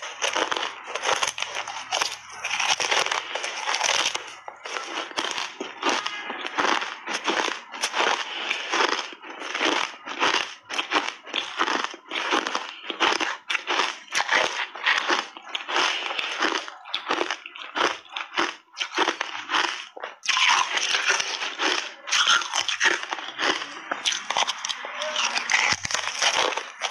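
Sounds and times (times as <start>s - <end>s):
crunching frozen ice bars: 0.0s - 26.9s.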